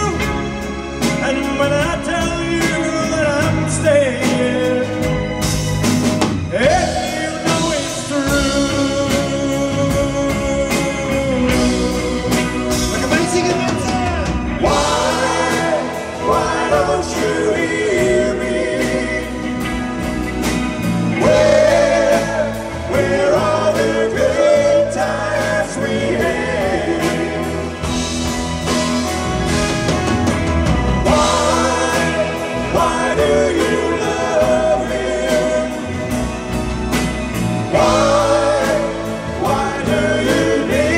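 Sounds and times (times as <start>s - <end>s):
man singing: 0.0s - 5.4s, 6.5s - 19.9s, 21.1s - 28.0s, 31.0s - 36.4s, 37.7s - 40.9s
pop-rock band playing: 0.0s - 40.9s.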